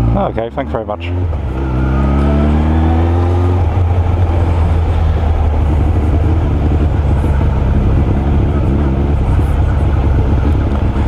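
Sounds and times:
motorcycle engine: 0:00.0 - 0:11.0
road and wind noise: 0:00.0 - 0:11.0.

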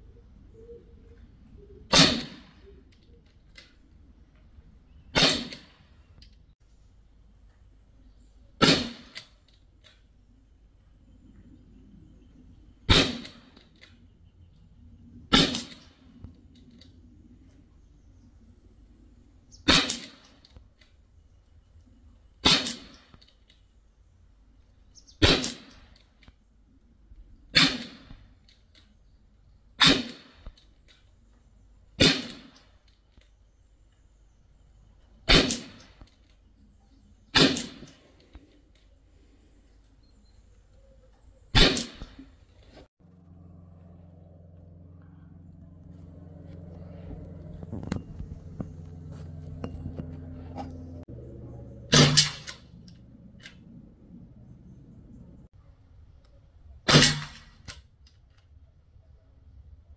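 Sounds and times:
air rifle shots: 0:01.9 - 0:02.7, 0:05.1 - 0:05.8, 0:08.6 - 0:09.4, 0:12.9 - 0:13.6, 0:15.3 - 0:16.0, 0:19.6 - 0:20.4, 0:22.4 - 0:23.1, 0:25.2 - 0:25.9, 0:27.5 - 0:28.2, 0:29.8 - 0:30.4, 0:32.0 - 0:32.6, 0:35.3 - 0:36.0, 0:37.3 - 0:38.1, 0:41.5 - 0:42.3, 0:51.9 - 0:52.7, 0:56.9 - 0:57.7.

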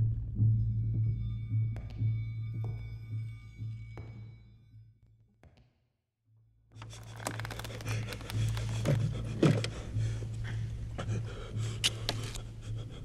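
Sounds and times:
rustling: 0:06.8 - 0:09.0.

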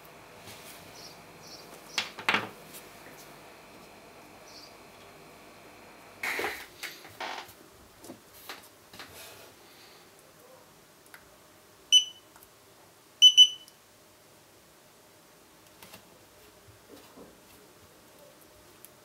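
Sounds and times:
camera beeping: 0:13.2 - 0:13.7.

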